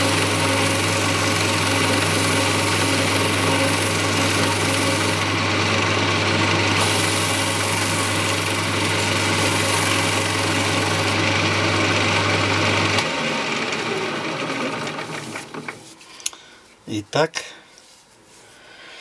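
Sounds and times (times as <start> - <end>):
rag rubbing on spinning wood: 0.0 - 5.5, 6.7 - 11.3
lathe motor humming: 0.0 - 15.8
lathe running down: 0.0 - 15.8.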